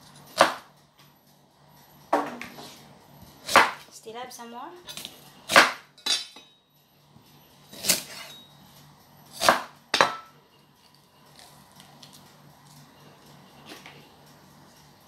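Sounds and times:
knife cutting onion on wooden board: 0.3s - 0.7s, 7.7s - 8.3s, 9.3s - 10.2s.

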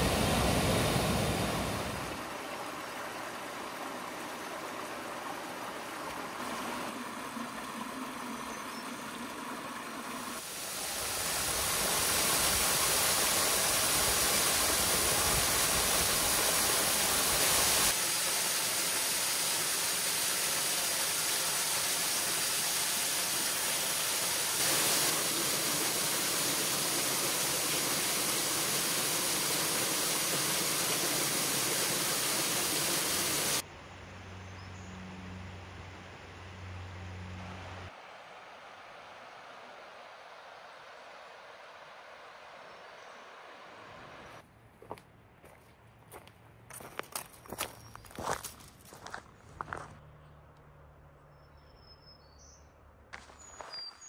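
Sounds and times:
waterfall rushing: 0.0s - 7.8s, 10.1s - 33.6s.

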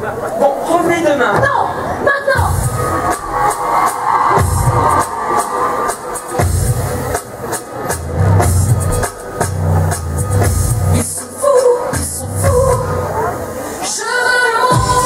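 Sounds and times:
show tune music: 2.3s - 13.7s
drum kit beat: 2.4s - 12.8s
deep bass line: 8.0s - 11.2s.

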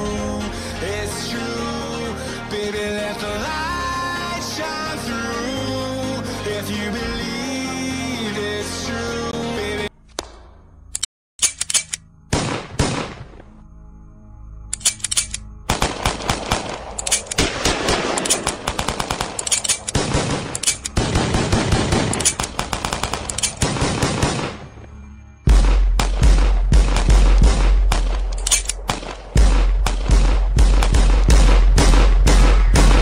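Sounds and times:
sung pop song: 0.0s - 9.9s
machine-gun sound effects: 14.9s - 24.6s.

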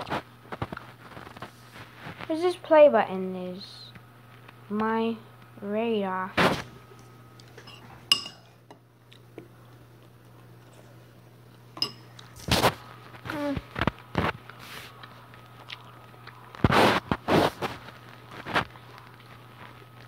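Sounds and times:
steady low hum: 0.0s - 20.0s
dishes clinking: 7.6s - 8.8s, 11.8s - 12.1s.

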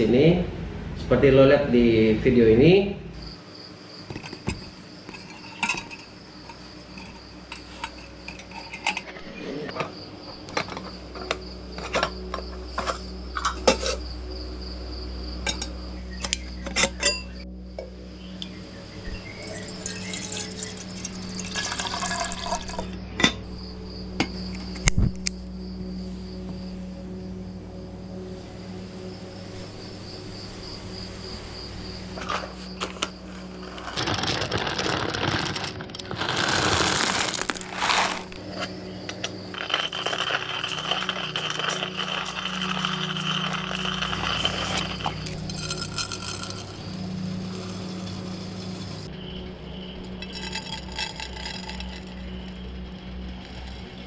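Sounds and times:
loud clatter and scraping: 4.1s - 9.9s, 32.2s - 49.1s, 50.1s - 52.7s
hand coffee grinder grinding beans: 4.2s - 9.1s, 19.4s - 22.9s, 32.8s - 49.1s, 50.2s - 52.6s.

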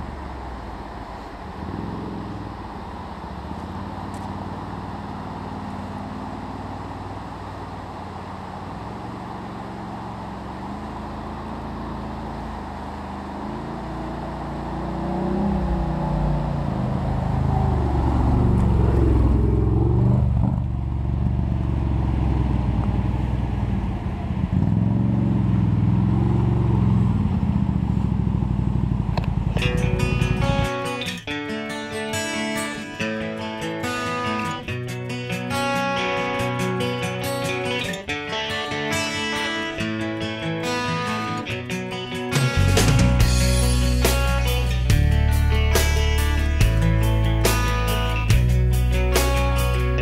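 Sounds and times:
creek water rushing: 0.0s - 20.0s
atv engine revving: 0.0s - 30.8s.

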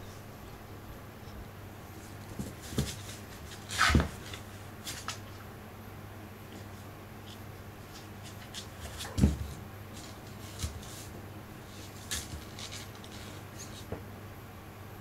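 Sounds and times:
low room hum: 0.0s - 15.0s
paws scratching and tapping: 2.0s - 5.3s, 7.3s - 11.2s, 11.8s - 14.0s
kitten body thumping on floor: 8.8s - 9.6s.

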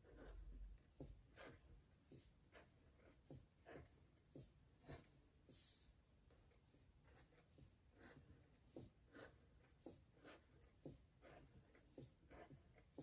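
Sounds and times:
marker strokes on paper: 0.0s - 13.0s.

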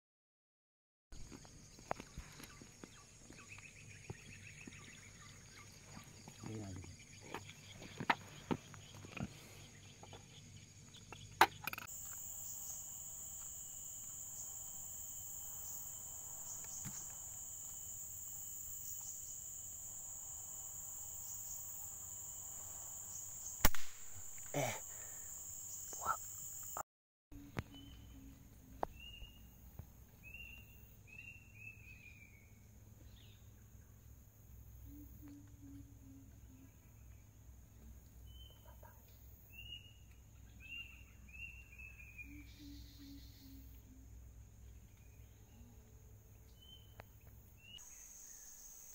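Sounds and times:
insects droning: 1.2s - 26.8s, 27.4s - 48.9s
air rifle shot: 23.6s - 24.5s.

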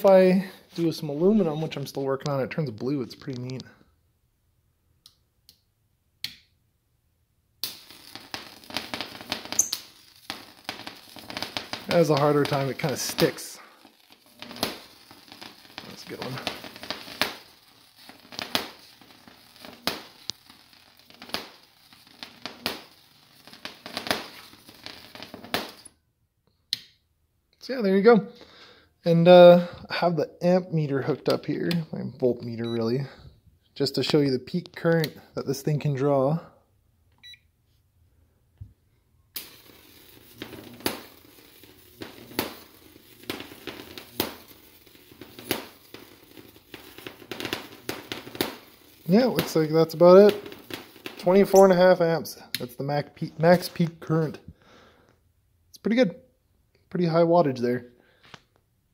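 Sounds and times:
electric arc crackling and snapping: 7.6s - 25.9s, 39.3s - 54.1s.

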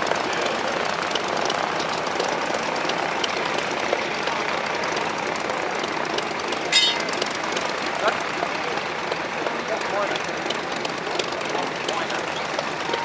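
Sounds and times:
light aircraft engine drone: 0.0s - 13.0s.

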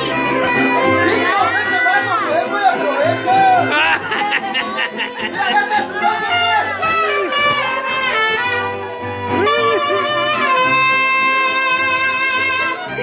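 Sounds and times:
band guitars: 0.0s - 13.0s
trumpet playing a melody: 6.3s - 13.0s.

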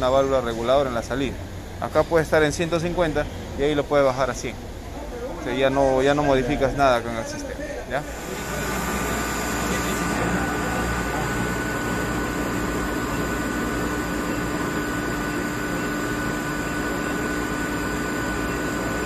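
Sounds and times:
air compressor humming: 7.9s - 19.0s.

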